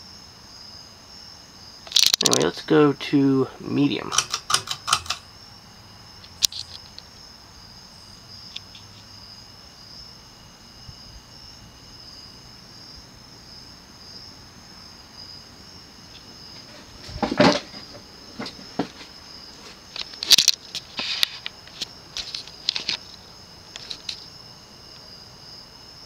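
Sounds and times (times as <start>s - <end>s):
cluster of clicks: 1.8s - 2.4s, 4.0s - 5.3s, 6.2s - 7.1s, 19.9s - 24.3s
chain rattling: 4.0s - 5.2s
pull-chain switch clicking: 4.1s - 5.2s.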